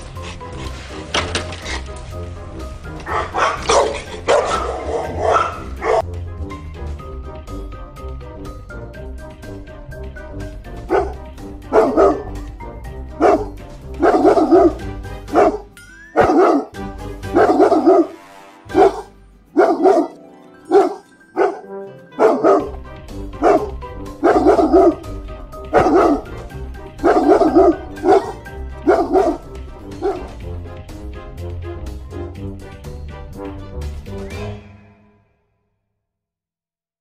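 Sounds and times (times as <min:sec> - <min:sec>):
background music: 0:00.0 - 0:35.6
dog barking: 0:03.1 - 0:06.0, 0:10.9 - 0:12.4, 0:13.2 - 0:22.8, 0:23.4 - 0:25.1, 0:25.7 - 0:26.4, 0:27.0 - 0:30.4.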